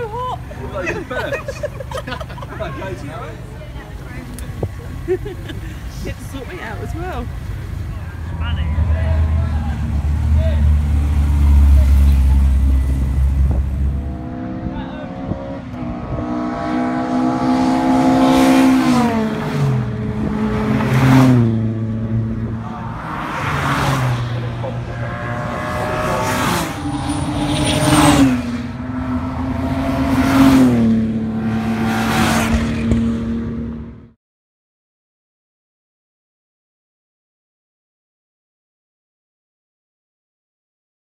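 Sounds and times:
cars driving past at speed: 0:00.6 - 0:34.2.

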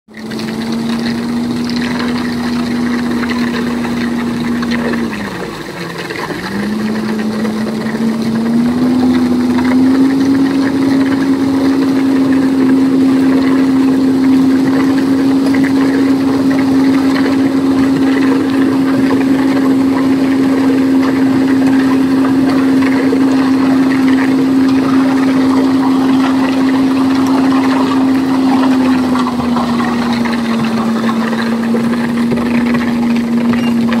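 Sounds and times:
concrete mixer drum turning: 0:00.1 - 0:34.0
diesel engine running: 0:00.1 - 0:34.0.

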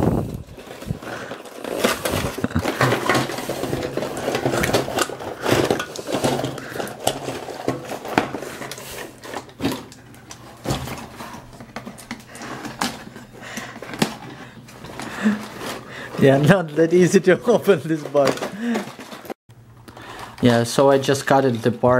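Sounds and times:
plastic toy figures clacking: 0:17.5 - 0:19.4.

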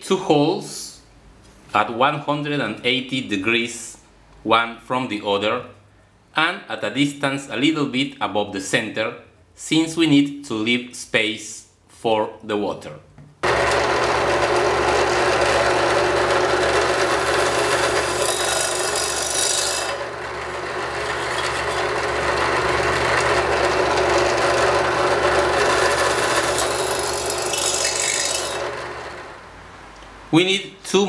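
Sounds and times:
drill press grinding into metal: 0:13.4 - 0:29.4.

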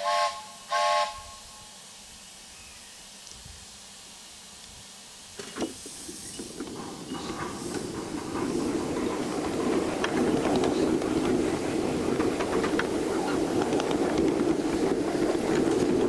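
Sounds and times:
steam hiss: 0:00.0 - 0:16.0
miniature train running: 0:05.4 - 0:16.0
wheels clicking on track: 0:05.4 - 0:16.0.

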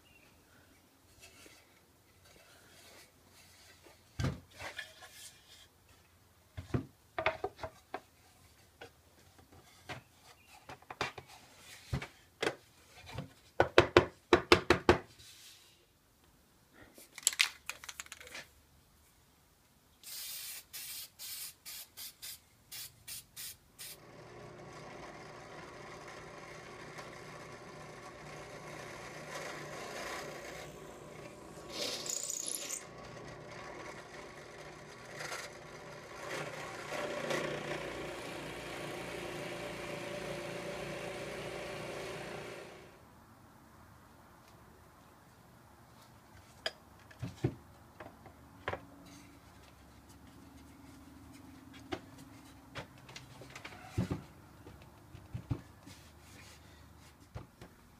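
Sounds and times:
aerosol can spraying: 0:20.0 - 0:24.0
drill press boring into wood: 0:24.0 - 0:42.9.

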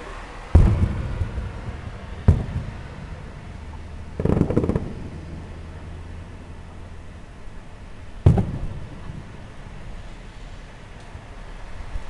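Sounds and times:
crackling firework pops: 0:04.2 - 0:05.1, 0:08.2 - 0:09.3
firework shells bursting: 0:04.2 - 0:05.1.

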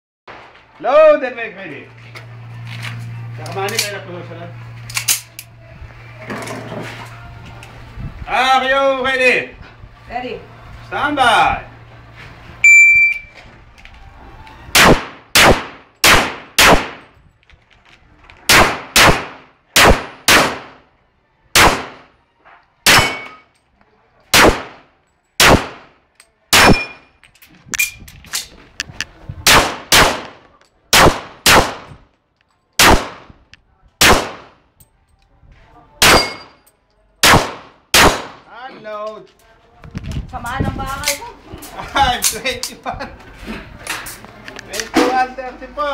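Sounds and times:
shot timer beep: 0:12.6 - 0:13.3
pistol shots: 0:14.8 - 0:17.0, 0:18.5 - 0:20.8, 0:21.6 - 0:22.1, 0:22.9 - 0:23.4, 0:24.3 - 0:27.1, 0:29.4 - 0:32.0, 0:32.8 - 0:33.3, 0:34.0 - 0:34.6, 0:36.0 - 0:36.6, 0:37.2 - 0:38.4.

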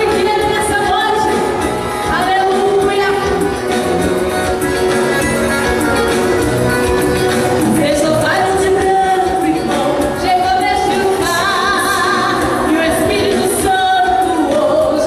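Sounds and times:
woman singing gospel song: 0:00.0 - 0:03.6, 0:07.7 - 0:15.0.

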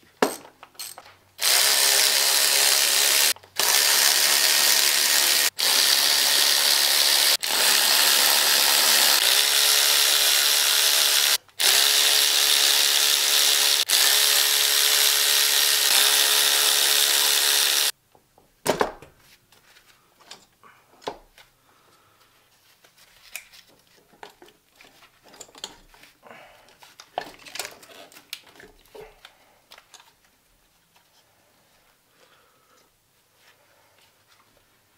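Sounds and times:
tools and parts clicking: 0:00.2 - 0:01.2, 0:23.2 - 0:26.0, 0:26.7 - 0:29.0
handheld power tool running: 0:01.4 - 0:17.9.

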